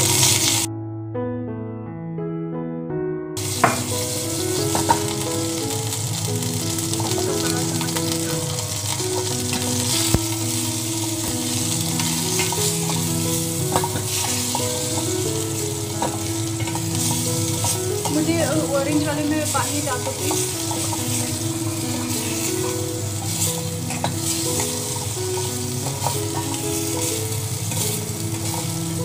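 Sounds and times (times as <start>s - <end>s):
chicken sizzling in oil: 0.0s - 0.7s, 3.4s - 29.0s
background music with held notes: 0.0s - 1.3s, 2.1s - 29.0s
metal ladle clicking on pan: 16.0s - 18.6s.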